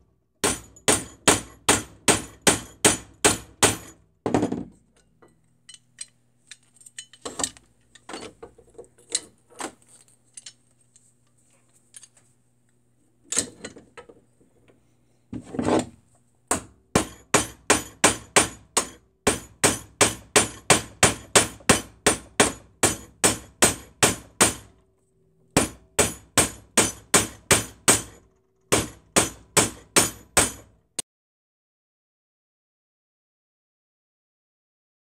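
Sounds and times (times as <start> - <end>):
hammer tapping metal wrench: 16.5 - 24.7.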